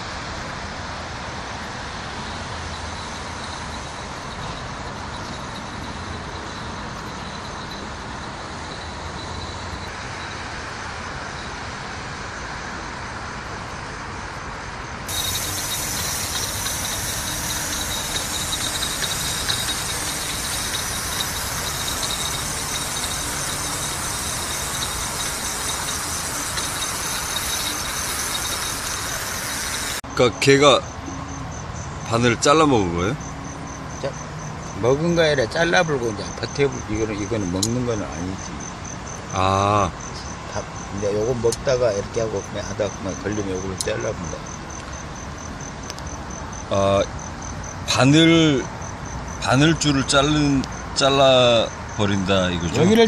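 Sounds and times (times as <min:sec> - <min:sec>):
road traffic hum: 0:00.0 - 0:53.0
faint high pulsing tone: 0:02.6 - 0:09.9, 0:15.1 - 0:30.0.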